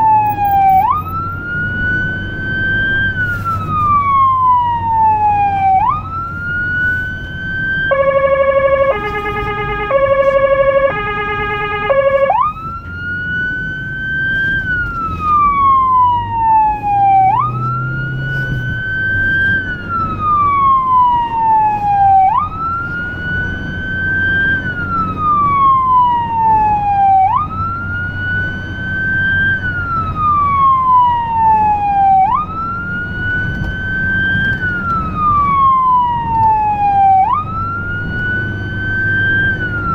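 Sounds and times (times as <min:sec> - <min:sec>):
electronic siren wailing: 0:00.0 - 0:39.9
two-pitch chopped siren tone: 0:07.7 - 0:12.9.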